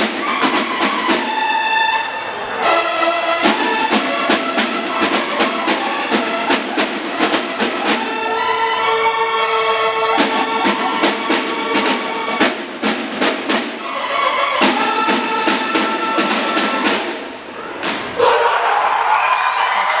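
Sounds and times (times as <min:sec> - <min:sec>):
snare drum beats: 0:00.0 - 0:01.8, 0:03.3 - 0:08.4, 0:10.0 - 0:18.2
bugles playing held notes: 0:00.0 - 0:17.2.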